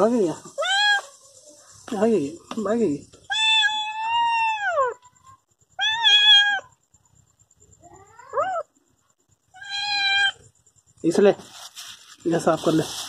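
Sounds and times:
cat meowing: 0:00.5 - 0:01.2, 0:03.3 - 0:06.8, 0:07.8 - 0:08.7, 0:09.5 - 0:10.5.

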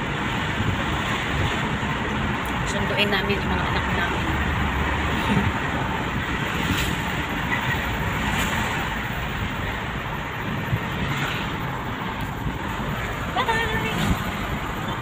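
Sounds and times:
car road and engine noise: 0:00.0 - 0:15.0.

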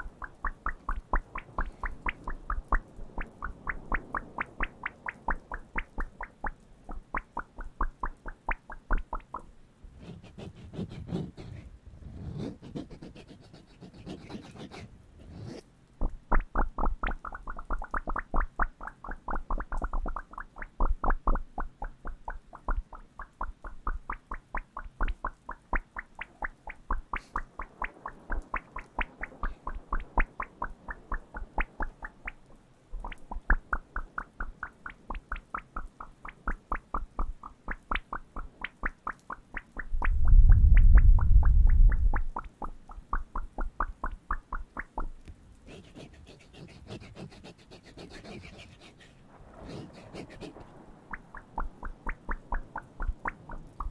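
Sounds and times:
card rubbing and scraping: 0:10.0 - 0:15.6.

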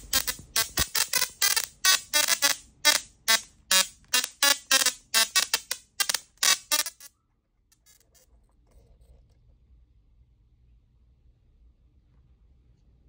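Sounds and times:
tesla coil buzzy notes: 0:00.0 - 0:07.1
faint low hum: 0:07.2 - 0:13.0.

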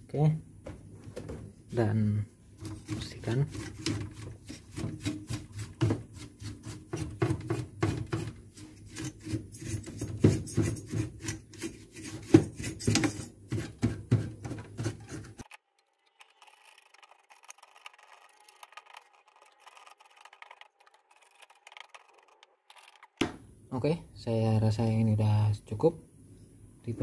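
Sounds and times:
bristle brush scrubbing circuit board: 0:02.6 - 0:15.5, 0:16.2 - 0:23.2.

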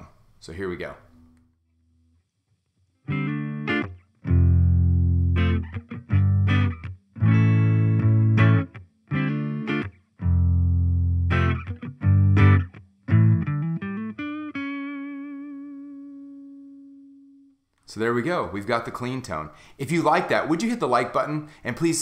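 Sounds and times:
clean electric guitar chords: 0:03.0 - 0:17.6.

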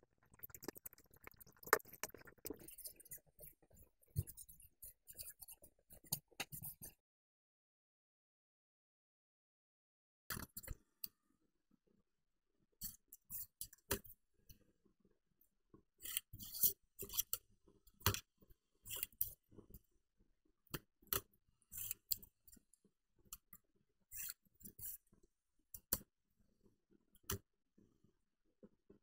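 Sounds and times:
pencil scratching on paper: 0:02.5 - 0:06.9.

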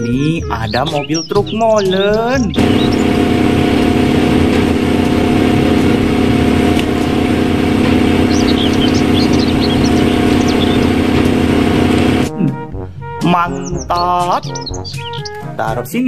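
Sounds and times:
truck engine running: 0:02.5 - 0:12.3
faint bird chirps: 0:08.2 - 0:10.9.

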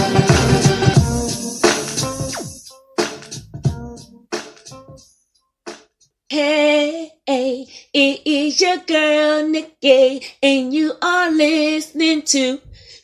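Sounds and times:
woman singing unaccompanied: 0:06.3 - 0:13.0.

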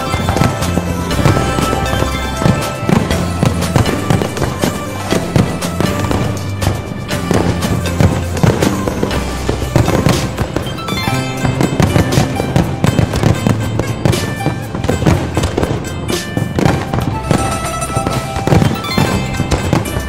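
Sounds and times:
fireworks bursting: 0:00.0 - 0:20.0
music playing: 0:00.0 - 0:20.0.

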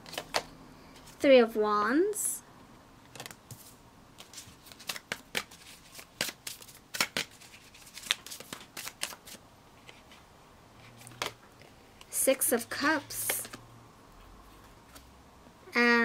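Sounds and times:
cards being shuffled: 0:00.0 - 0:01.2, 0:03.1 - 0:10.2, 0:10.8 - 0:12.1, 0:13.1 - 0:13.6.

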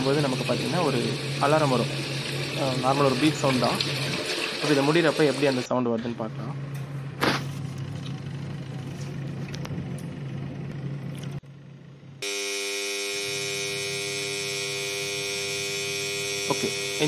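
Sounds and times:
water churning: 0:00.0 - 0:05.7
washing machine motor humming: 0:00.0 - 0:17.0
alarm buzzer: 0:12.2 - 0:17.0.

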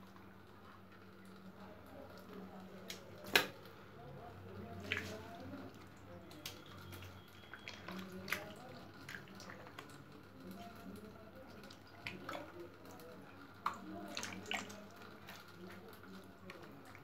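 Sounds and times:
hand squelching fish in basin: 0:04.7 - 0:10.0, 0:13.6 - 0:16.9.

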